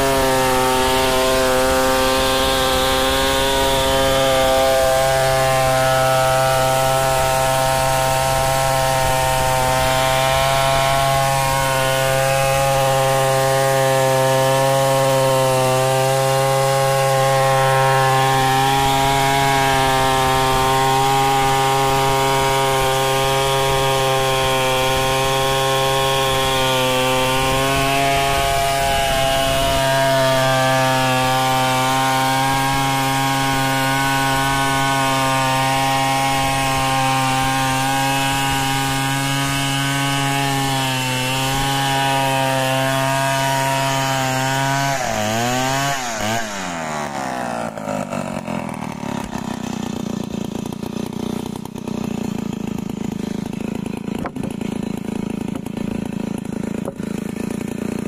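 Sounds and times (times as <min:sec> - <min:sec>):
chainsaw cutting log: 0:00.0 - 0:58.0.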